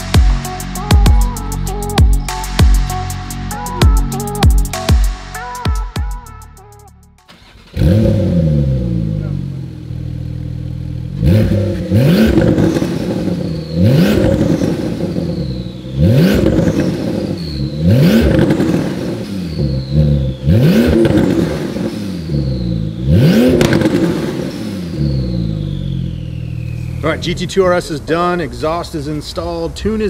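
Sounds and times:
car engine revving: 0:07.3 - 0:29.4
turbo whistle: 0:13.0 - 0:22.9, 0:24.1 - 0:27.1.

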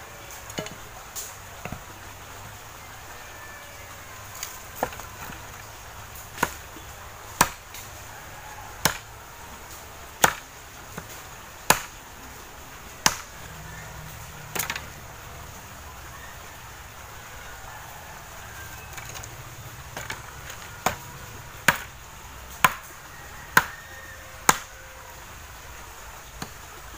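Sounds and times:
machete chopping dry branches: 0:00.4 - 0:01.9, 0:04.3 - 0:08.0, 0:08.8 - 0:09.1, 0:09.7 - 0:12.0, 0:13.0 - 0:13.4, 0:14.5 - 0:14.9, 0:19.9 - 0:23.8, 0:24.4 - 0:24.8.

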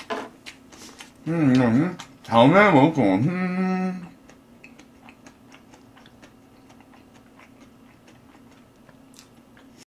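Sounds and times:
low electrical hum: 0:00.0 - 0:09.9
wet chewing clicks: 0:04.1 - 0:09.8.

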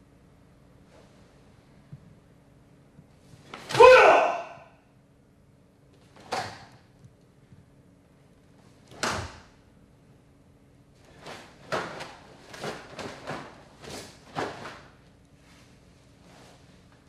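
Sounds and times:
karate uniform snapping: 0:06.2 - 0:06.8, 0:08.9 - 0:09.5.

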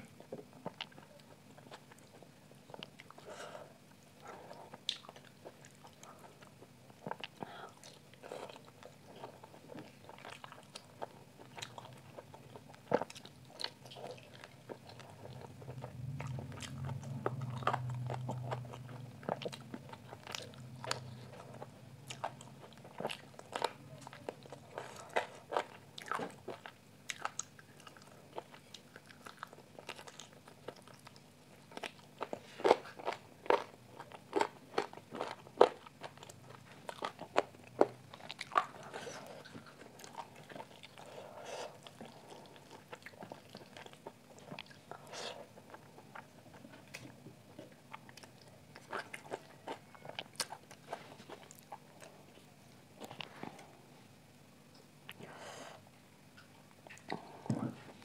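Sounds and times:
person chewing with mouth smacks: 0:04.1 - 0:53.7, 0:56.3 - 0:58.0
low hum: 0:14.8 - 0:22.9.

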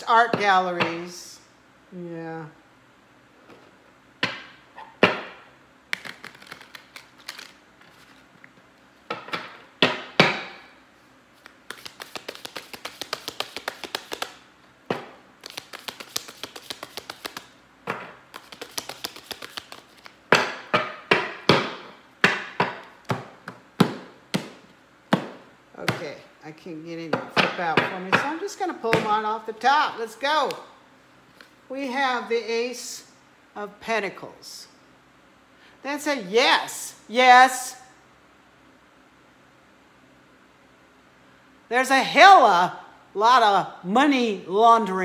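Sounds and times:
cards tapping: 0:05.9 - 0:07.6, 0:11.4 - 0:14.4, 0:15.4 - 0:26.0
cards being shuffled: 0:05.9 - 0:08.9, 0:11.3 - 0:14.4, 0:15.4 - 0:17.6, 0:18.3 - 0:20.2.

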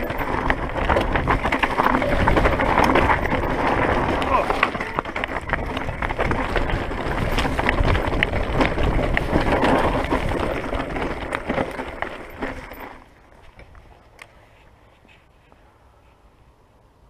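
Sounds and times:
wind on microphone: 0:00.0 - 0:11.3
bike rattling: 0:00.0 - 0:15.2
bike tyres on rough ground: 0:00.0 - 0:17.0.

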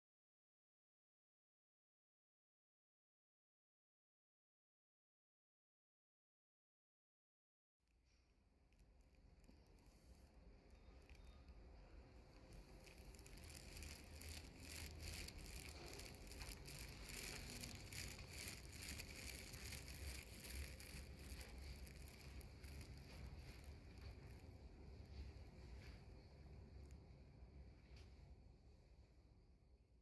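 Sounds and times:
clothing rustling: 0:09.5 - 0:26.4
footsteps: 0:11.0 - 0:26.9.

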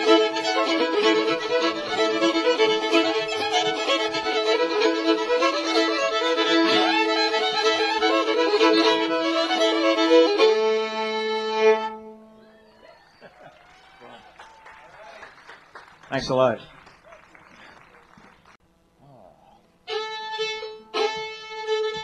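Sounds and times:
string band playing a hornpipe: 0:00.0 - 0:12.5
held fiddle chord: 0:00.0 - 0:12.6, 0:19.8 - 0:22.0.

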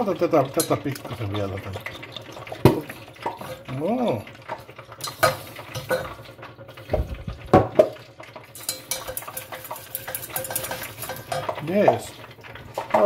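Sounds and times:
knocks on pot: 0:02.6 - 0:03.5, 0:06.9 - 0:08.0
whisk scraping a metal pot: 0:08.4 - 0:13.0.

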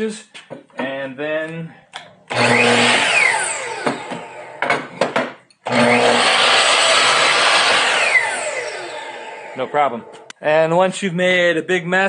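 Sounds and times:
miter saw cutting wood: 0:02.3 - 0:04.9, 0:05.6 - 0:10.3
knocks: 0:03.8 - 0:05.4.

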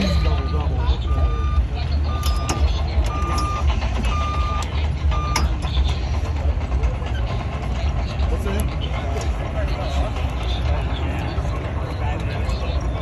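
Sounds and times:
vehicle backup alarm beeping: 0:00.0 - 0:05.8
steady low rumble: 0:00.0 - 0:13.0.

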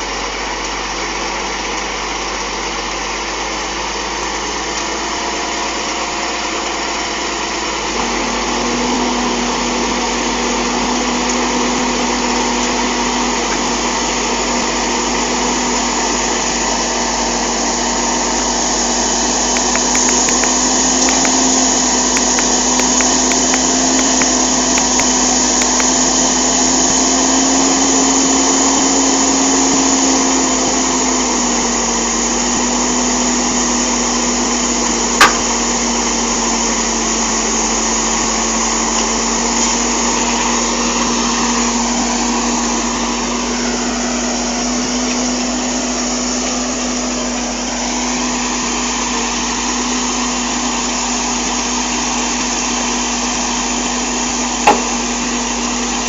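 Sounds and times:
truck diesel engine revving: 0:00.0 - 0:56.0
sharp click: 0:19.5 - 0:21.4, 0:54.6 - 0:54.9.

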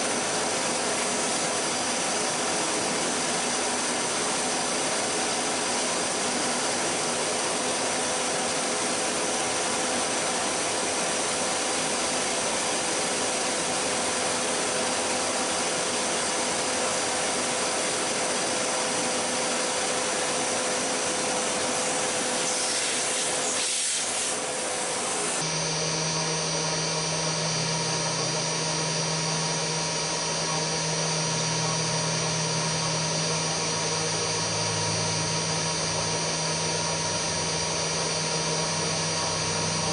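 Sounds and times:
milling machine drilling: 0:24.3 - 0:39.9.

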